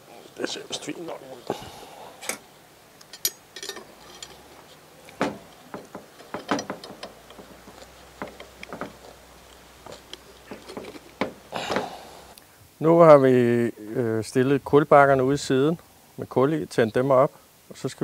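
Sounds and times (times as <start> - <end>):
metal spit forks clicking and knocking: 3.0 - 4.4.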